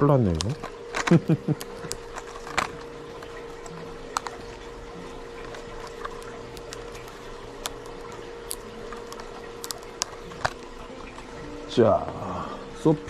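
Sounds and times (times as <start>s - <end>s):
plastic packaging clicks and crinkles: 0.1s - 11.3s.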